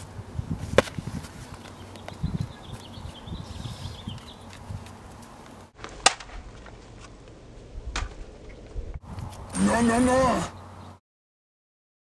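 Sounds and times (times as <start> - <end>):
faint outdoor background noise: 0.0 - 11.0
sharp cracks: 5.8 - 6.8.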